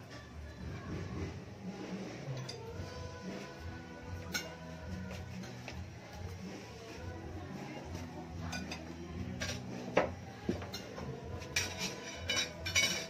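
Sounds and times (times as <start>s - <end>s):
cutlery clinking on plates: 4.2s - 4.6s, 8.4s - 13.0s.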